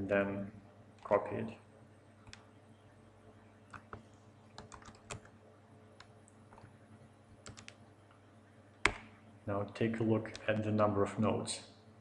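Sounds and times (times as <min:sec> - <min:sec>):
faint electrical hum: 0:00.0 - 0:12.0
keyboard keys clicking: 0:04.6 - 0:05.3, 0:07.4 - 0:07.8.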